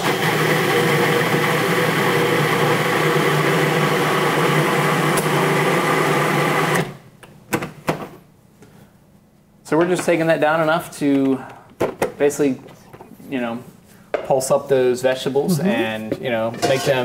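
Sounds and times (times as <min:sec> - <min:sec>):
food processor chopping: 0:00.0 - 0:07.0.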